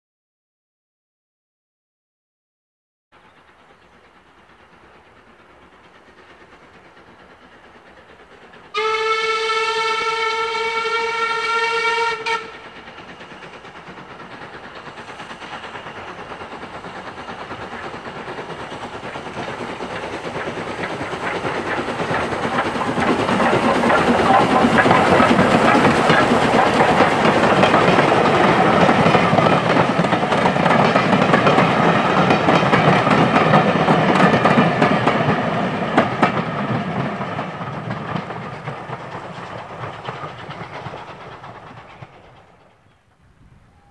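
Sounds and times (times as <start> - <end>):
train running past: 3.2 - 43.9
steam locomotive whistle: 8.7 - 12.8.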